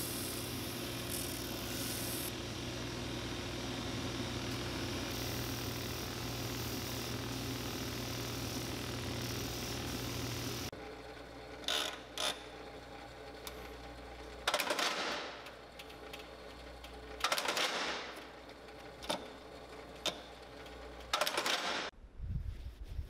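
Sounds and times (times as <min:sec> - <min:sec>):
machine noise bursts: 0:00.0 - 0:10.7
shoe repair machine motor hum: 0:00.0 - 0:21.9.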